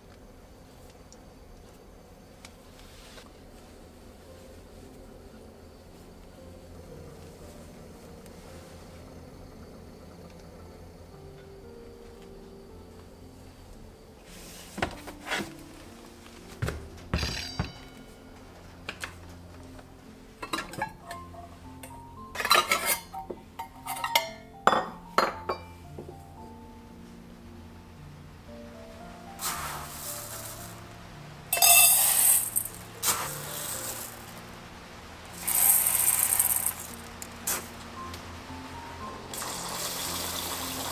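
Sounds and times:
soft background music: 0.0 - 40.9
dry rice rustling: 29.0 - 34.6, 35.3 - 37.8
rice pattering into metal bowl: 29.4 - 30.8, 31.5 - 34.4, 35.3 - 37.7.

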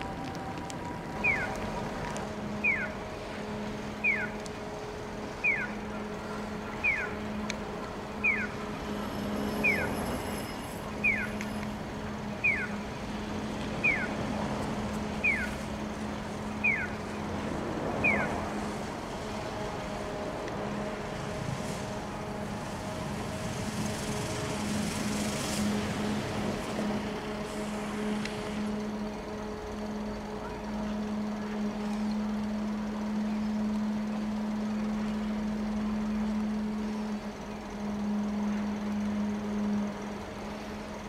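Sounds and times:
low hum: 0.0 - 41.0
street traffic noise: 0.0 - 41.0
pedestrian crossing signal chirp: 1.1 - 1.6, 2.5 - 3.0, 4.0 - 4.4, 5.3 - 7.6, 8.2 - 8.7, 9.5 - 12.9, 13.8 - 14.2, 15.0 - 15.6, 16.4 - 17.1, 18.0 - 18.4.

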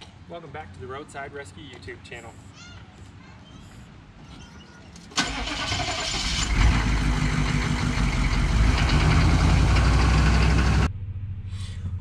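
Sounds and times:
truck engine running: 5.2 - 12.0.

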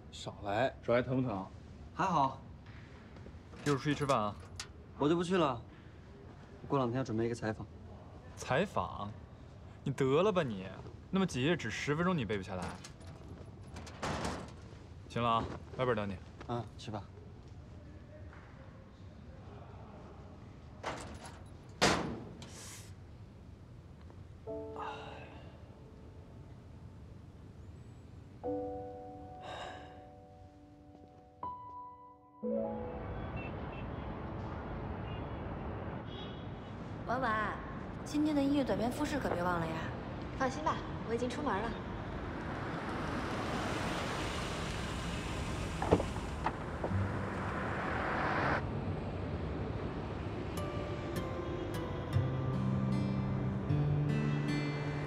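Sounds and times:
metal locker door clattering: 12.6 - 14.6, 20.8 - 22.5
metal locker door banging: 21.8 - 22.4
soft music chord: 24.4 - 26.8, 28.4 - 33.6, 49.9 - 55.0
cars driving past: 32.5 - 38.2, 38.9 - 55.0.

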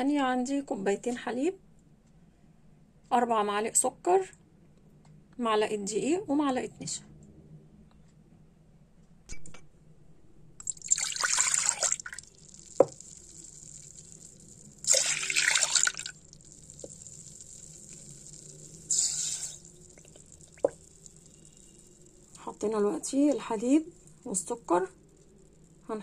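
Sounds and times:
milk pouring into pot: 10.6 - 22.5.

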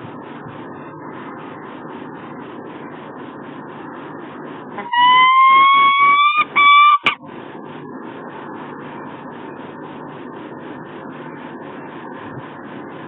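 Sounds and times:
falcon call: 4.8 - 7.2.

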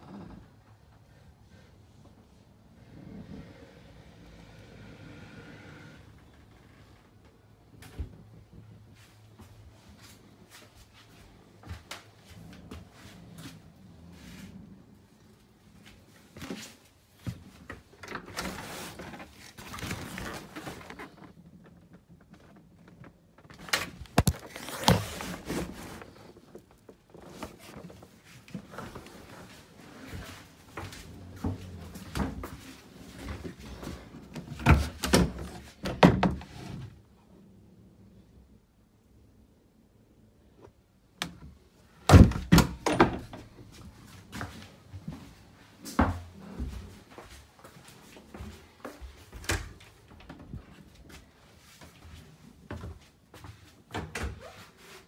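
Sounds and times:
gear and fabric rustling: 8.9 - 34.9.

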